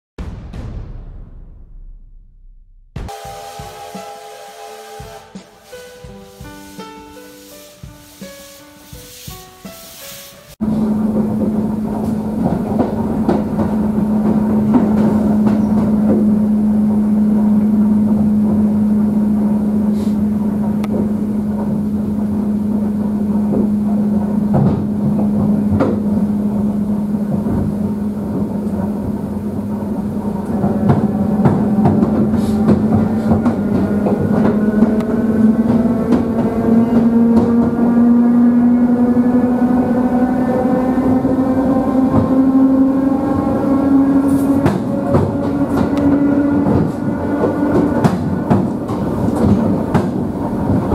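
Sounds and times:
train hum and rumble: 0:03.1 - 0:50.9
wheels clicking over rail joints: 0:10.6 - 0:38.7, 0:41.4 - 0:50.9
rising multi-tone motor whine: 0:29.5 - 0:46.6.

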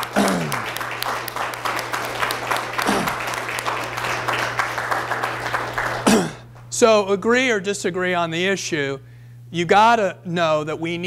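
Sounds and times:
audience applauding: 0:00.0 - 0:06.6
steady low hum: 0:00.0 - 0:11.0.

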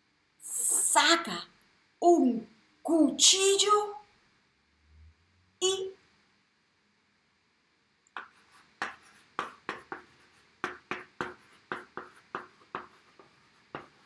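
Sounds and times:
chalk tapping and scratching: 0:08.1 - 0:14.0.

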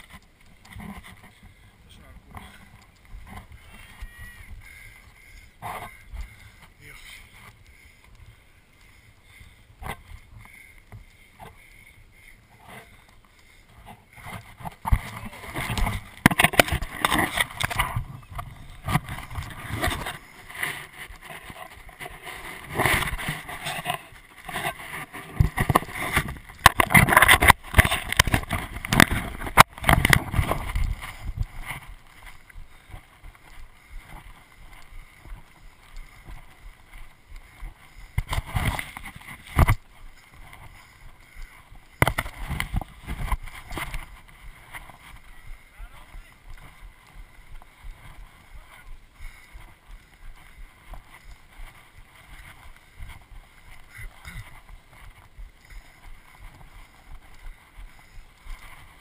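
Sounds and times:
camera rubbing and jolting: 0:00.0 - 0:01.4, 0:13.8 - 0:48.4.

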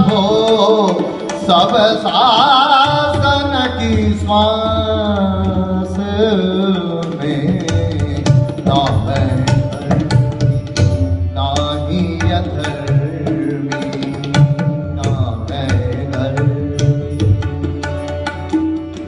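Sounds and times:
man singing: 0:00.0 - 0:18.0
tabla strokes: 0:00.0 - 0:19.0
harmonium drone: 0:08.5 - 0:19.0.

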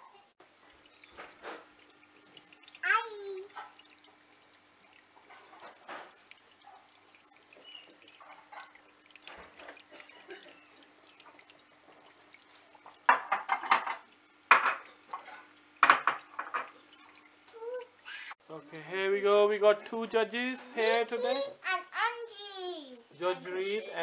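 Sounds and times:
small water fountain trickling: 0:00.1 - 0:24.0
dishes and cutlery clattering: 0:13.1 - 0:16.8.

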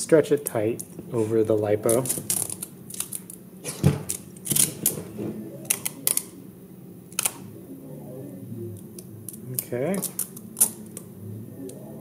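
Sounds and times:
tape crackling and snapping: 0:00.3 - 0:06.4, 0:07.1 - 0:07.5, 0:08.8 - 0:11.1.

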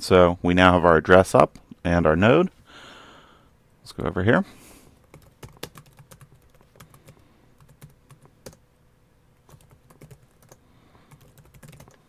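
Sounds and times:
keyboard typing: 0:05.0 - 0:08.6, 0:09.4 - 0:12.0.

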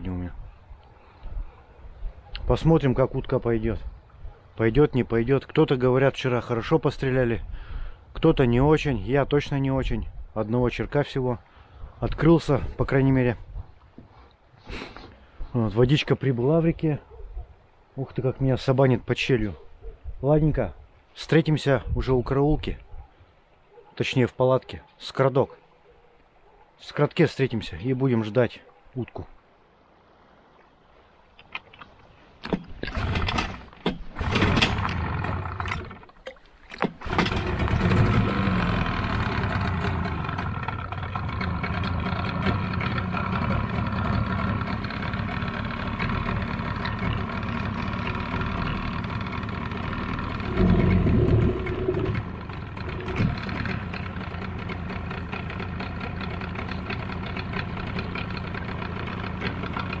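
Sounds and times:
boat motor sputtering and running: 0:34.2 - 0:36.1, 0:36.9 - 1:00.0.

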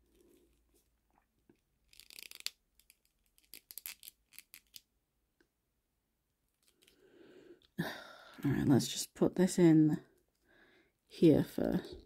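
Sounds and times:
small plastic clicks and scrapes: 0:01.5 - 0:04.9.

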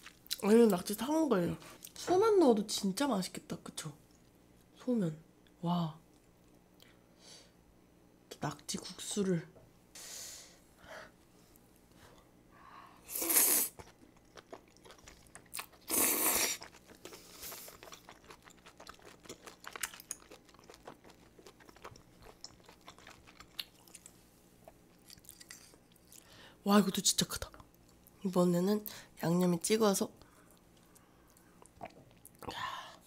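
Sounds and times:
loud slurps: 0:13.1 - 0:13.9, 0:15.8 - 0:18.1
wet chewing with clicks: 0:13.8 - 0:26.3.

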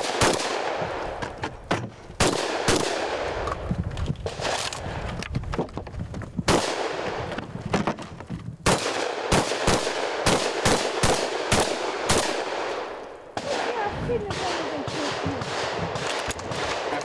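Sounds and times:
shotgun shots: 0:00.0 - 0:03.5, 0:06.5 - 0:07.4, 0:08.6 - 0:17.0.

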